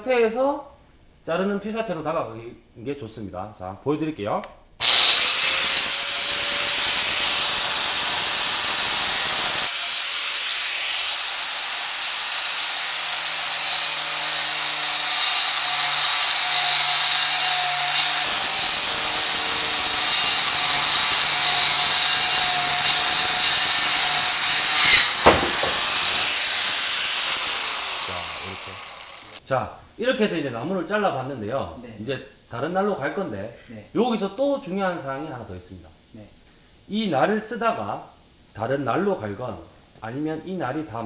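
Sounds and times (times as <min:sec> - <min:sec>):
angle grinder cutting wood: 0:04.8 - 0:29.4
sharp knock: 0:24.8 - 0:26.0.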